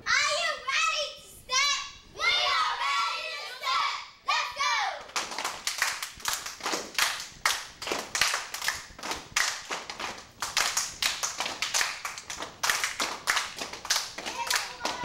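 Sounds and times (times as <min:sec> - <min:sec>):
children clapping in rhythm: 0:05.0 - 0:15.0.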